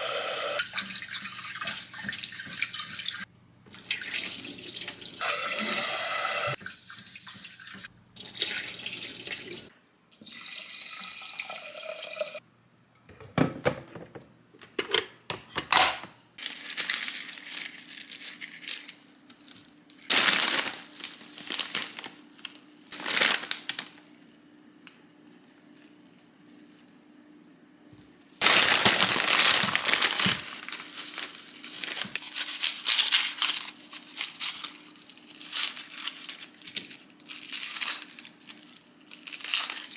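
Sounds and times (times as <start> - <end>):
tap water running into pot: 0.0 - 12.4
plastic bag crinkling: 16.4 - 24.3, 28.4 - 39.9
mesh bag rustling: 19.4 - 24.0, 28.4 - 36.4.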